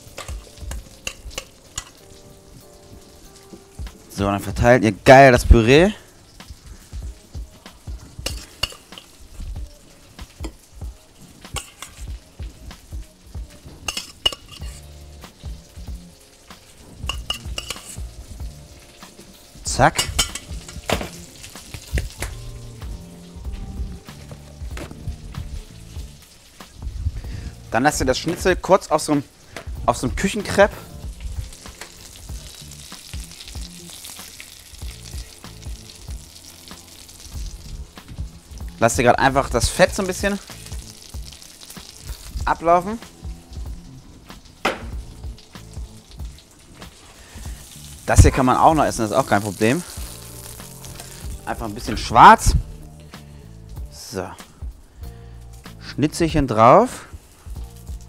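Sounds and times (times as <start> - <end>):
meat sizzling in hot fat: 0.0 - 58.0
tongs clicking against a pan: 0.1 - 2.0, 8.2 - 9.2, 11.4 - 12.1, 13.9 - 14.8, 17.1 - 18.0
metal spoon scraping pot: 8.2 - 9.1, 13.9 - 14.9, 17.1 - 18.0
spoon knocking: 8.2 - 9.1, 13.9 - 14.8, 17.1 - 18.0, 20.0 - 21.0.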